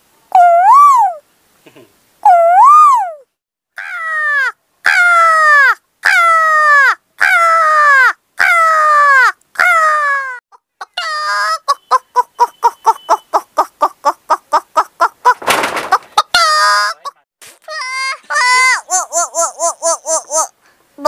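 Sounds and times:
woman imitating hen clucks: 0:02.2 - 0:03.2, 0:06.1 - 0:15.4, 0:16.2 - 0:20.6.

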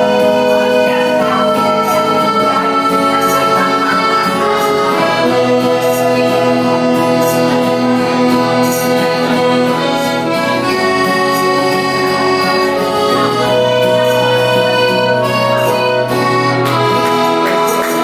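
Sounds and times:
acoustic guitar strumming: 0:00.0 - 0:18.0
button accordion chords: 0:00.0 - 0:18.0.

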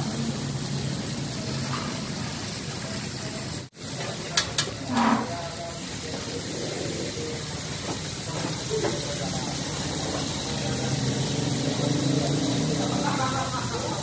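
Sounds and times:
butter sizzling: 0:00.0 - 0:14.0
food sizzling on griddle: 0:00.0 - 0:14.0
spoon clicking on griddle: 0:04.3 - 0:05.1.

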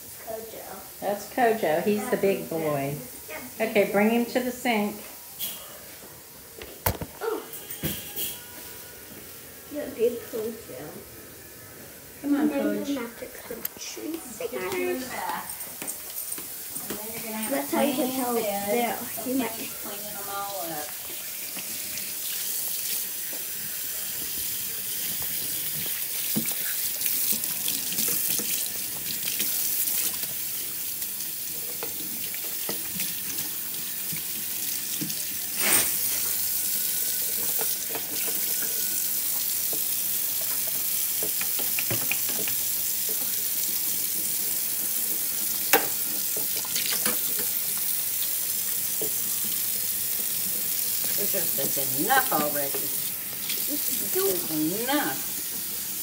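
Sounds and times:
faucet running into sink: 0:14.5 - 0:56.0.

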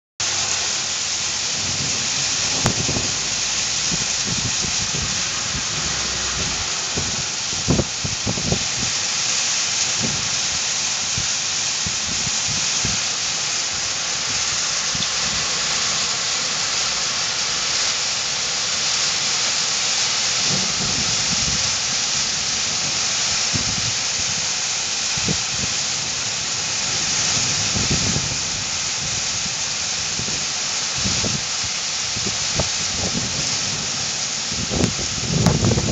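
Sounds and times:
low thunder rumbles: 0:00.2 - 0:09.0, 0:20.4 - 0:24.5, 0:25.1 - 0:31.4, 0:32.2 - 0:35.9
heavy rain and hail: 0:00.2 - 0:35.9.

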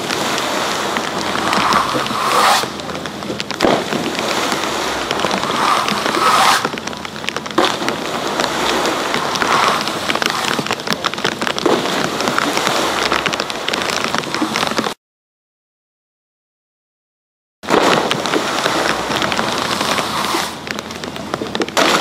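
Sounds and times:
bubbling pool water rushing: 0:00.0 - 0:14.9, 0:17.7 - 0:22.0
splash into pool: 0:17.7 - 0:20.6, 0:21.8 - 0:22.0.

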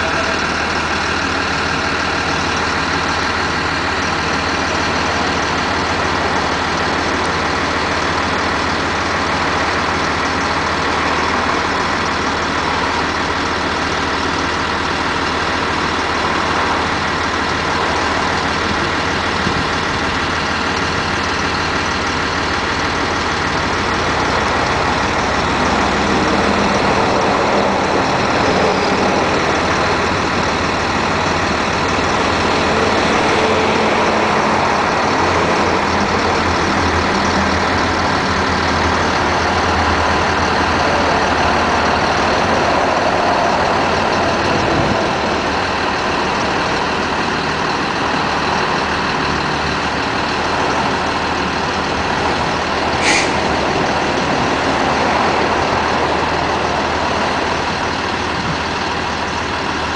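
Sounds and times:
diesel truck engine running: 0:00.0 - 0:59.9
brief sharp high sound: 0:53.0 - 0:53.4.

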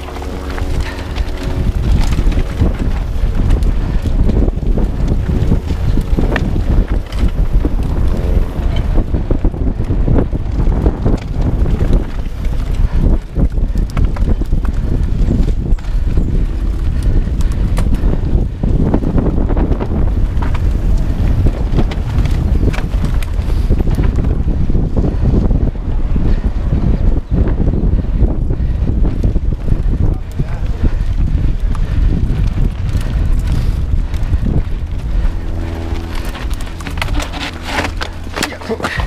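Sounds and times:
bike rattling and knocking: 0:00.0 - 0:39.0
wind buffeting microphone: 0:00.0 - 0:39.0.

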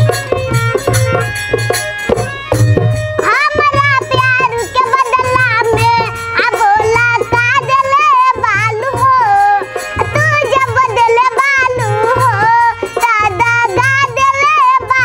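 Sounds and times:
instrumental accompaniment: 0:00.0 - 0:15.0
steady drum beat: 0:00.0 - 0:15.0
girl singing: 0:03.2 - 0:15.0.

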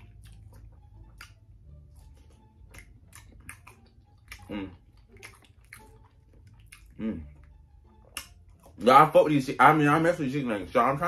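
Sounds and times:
person chewing: 0:00.0 - 0:09.0.

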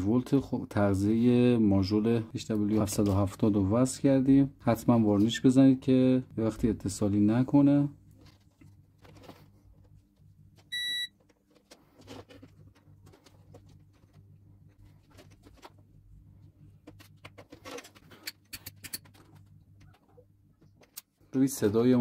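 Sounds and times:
low steady hum: 0:00.0 - 0:22.0
short electronic beep: 0:10.7 - 0:11.1
wires rustling and clicking: 0:16.8 - 0:21.2.

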